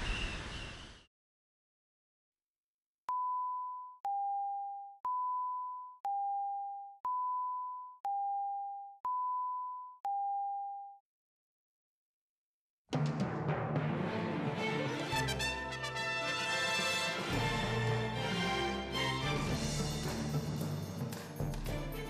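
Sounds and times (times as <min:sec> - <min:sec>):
countdown beeps: 0:03.1 - 0:10.8.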